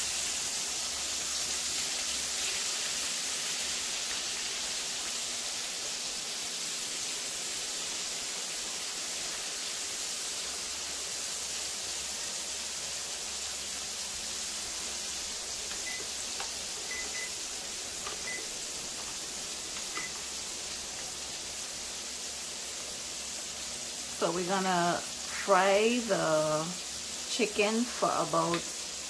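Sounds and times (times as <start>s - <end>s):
chicken sizzling in hot oil: 0.0s - 29.0s
oil popping and crackling: 13.2s - 24.1s.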